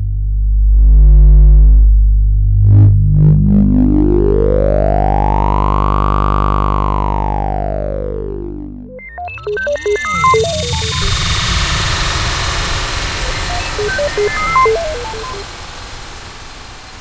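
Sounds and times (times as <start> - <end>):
deep bass drone: 0.0 - 17.0
bright tone sweeping in pitch: 7.1 - 17.0.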